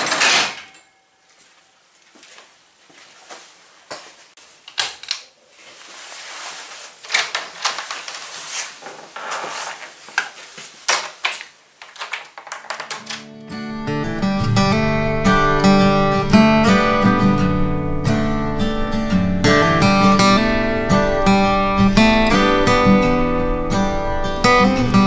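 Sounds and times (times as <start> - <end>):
knocks and shuffling in a room: 0.0 - 13.5.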